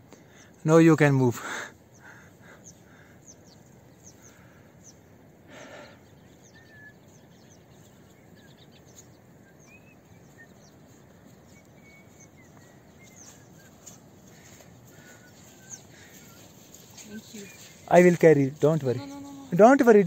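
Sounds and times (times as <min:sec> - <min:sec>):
small bird chirps: 0:06.0 - 0:19.6.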